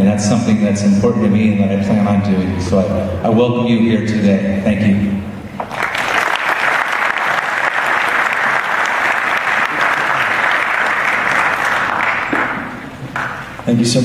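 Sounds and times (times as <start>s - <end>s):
audience applauding: 5.6s - 13.6s.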